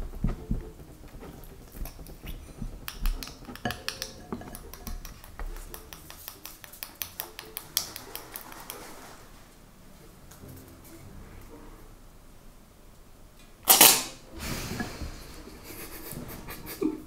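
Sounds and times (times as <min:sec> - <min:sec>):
slime stirred in glass bowl: 0:00.0 - 0:09.4
sticky clicks of kneaded slime: 0:00.2 - 0:09.0.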